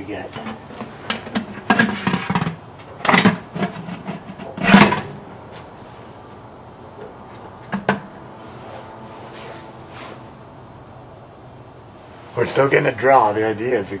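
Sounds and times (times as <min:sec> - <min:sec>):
tin cans scraping and clanking: 0:00.3 - 0:05.2.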